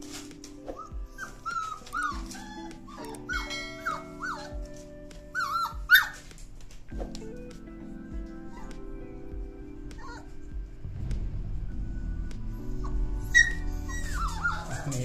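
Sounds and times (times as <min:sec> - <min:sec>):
background music with steady beat: 0:00.0 - 0:15.0
puppies whining and yelping: 0:00.1 - 0:06.6, 0:08.3 - 0:09.0, 0:09.9 - 0:10.5, 0:12.5 - 0:15.0.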